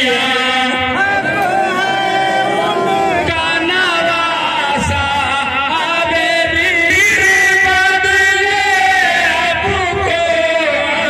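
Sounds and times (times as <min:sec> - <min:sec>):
voice chanting a lament: 0:00.0 - 0:11.0.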